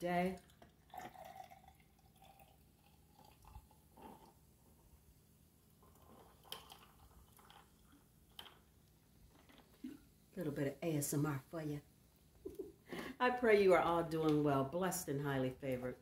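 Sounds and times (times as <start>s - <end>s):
sparkling water pouring over ice: 0.1s - 4.2s, 5.8s - 8.7s.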